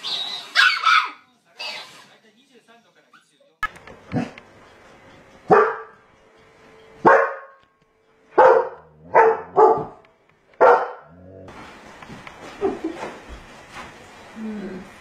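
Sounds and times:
dog barking: 0:00.6 - 0:01.2, 0:05.5 - 0:06.0, 0:07.0 - 0:07.6, 0:08.4 - 0:10.0, 0:10.6 - 0:11.2.

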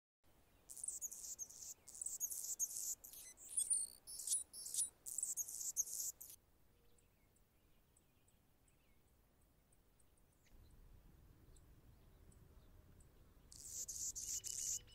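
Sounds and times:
hummingbird scratchy song: 0:00.7 - 0:06.4, 0:13.5 - 0:14.9.

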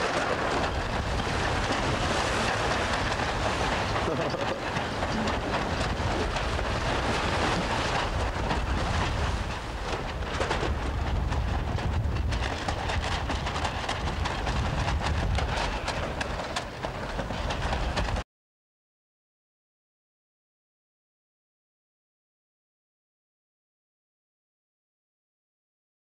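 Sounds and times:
wind buffeting microphone: 0:00.0 - 0:18.2.

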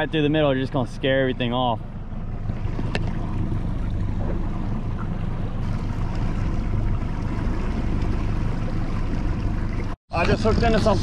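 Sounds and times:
outboard motor running: 0:00.0 - 0:11.0
water washing along hull: 0:00.0 - 0:11.0.

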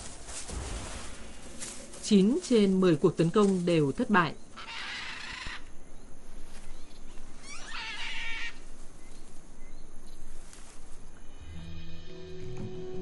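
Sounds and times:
macaws squawking: 0:03.4 - 0:09.1.

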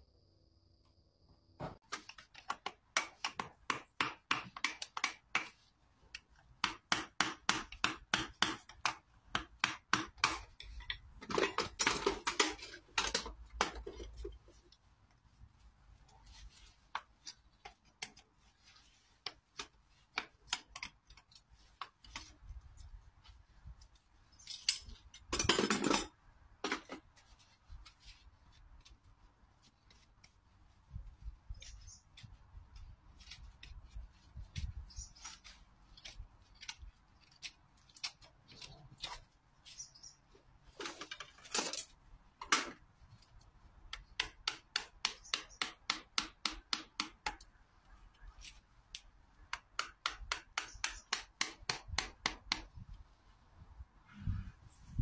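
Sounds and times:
metal tools scraping hoof: 0:10.5 - 0:14.6, 0:24.3 - 0:27.0.

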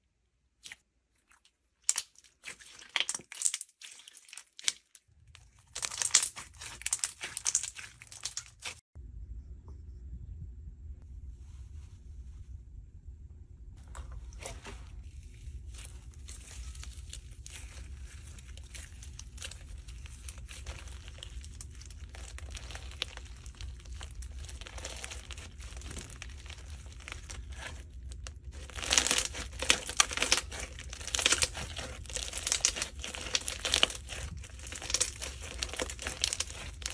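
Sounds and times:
slime with beads crackling: 0:01.8 - 0:08.8, 0:15.0 - 0:36.9.

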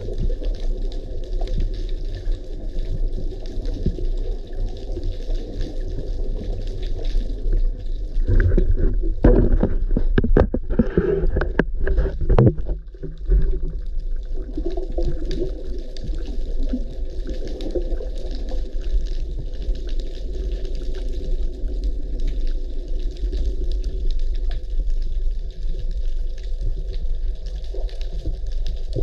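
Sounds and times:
muffled underwater rumble: 0:00.0 - 0:29.0
sharp clicks and knocks: 0:08.3 - 0:13.5.

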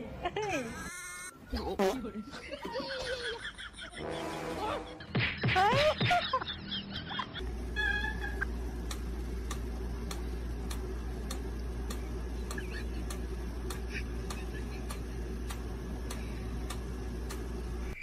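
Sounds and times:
low steady hum: 0:05.8 - 0:18.0
steady ticking: 0:08.4 - 0:17.9.

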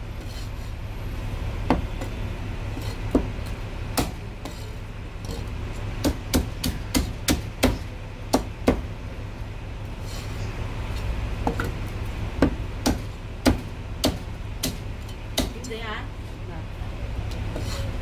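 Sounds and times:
cleaver chopping on wooden block: 0:04.0 - 0:04.6, 0:06.0 - 0:08.9, 0:12.4 - 0:14.8, 0:15.4 - 0:15.6.

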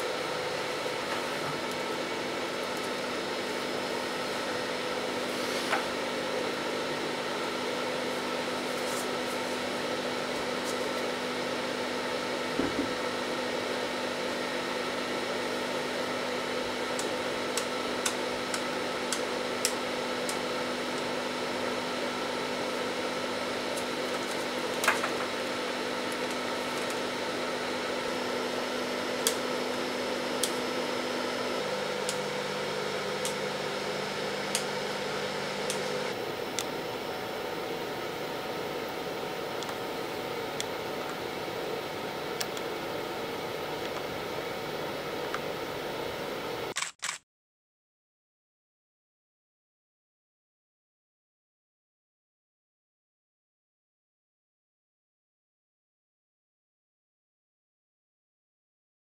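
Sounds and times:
machine hum: 0:00.0 - 0:46.8.

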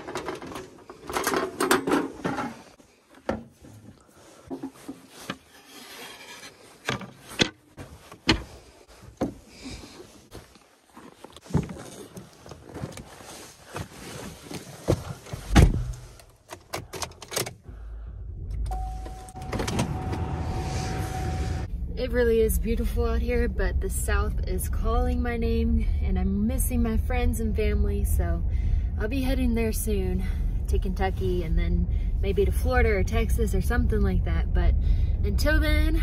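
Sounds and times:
car engine starting and running: 0:15.6 - 0:36.0
steady tone: 0:18.1 - 0:24.6.

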